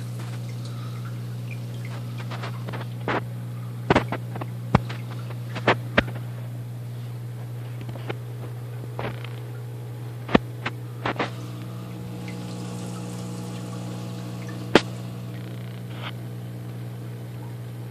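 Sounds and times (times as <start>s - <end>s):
water bubbling: 0.0s - 3.3s, 10.9s - 17.5s
aquarium pump humming: 0.0s - 17.9s.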